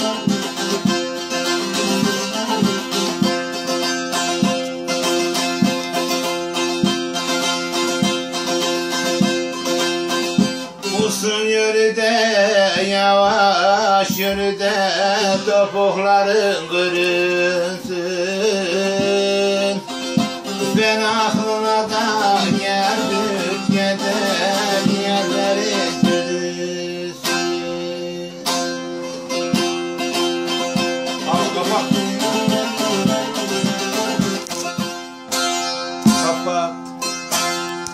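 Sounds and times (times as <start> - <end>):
man singing: 0.0 - 3.5, 10.8 - 28.8, 31.0 - 34.6
long-necked lute strummed: 0.0 - 37.9.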